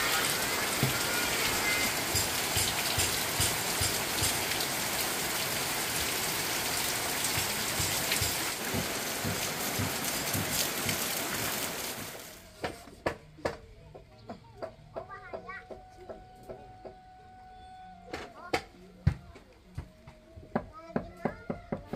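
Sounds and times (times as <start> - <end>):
heavy rain falling: 0.0 - 12.5.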